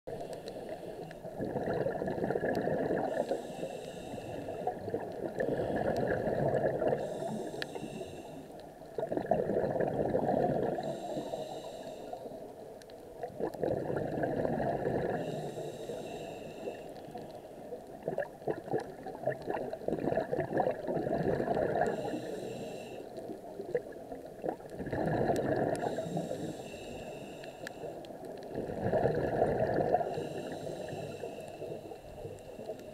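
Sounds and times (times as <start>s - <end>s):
regulator inhale hiss: 0.1s - 1.3s, 3.0s - 6.2s, 6.8s - 8.7s, 10.6s - 12.6s, 15.0s - 17.8s, 21.8s - 23.4s, 25.8s - 28.4s, 29.9s - 32.9s
bubbling gurgle of exhaled bubbles: 1.0s - 3.5s, 4.4s - 7.4s, 8.9s - 11.1s, 13.1s - 15.4s, 17.0s - 22.2s, 23.1s - 26.4s, 28.1s - 32.4s.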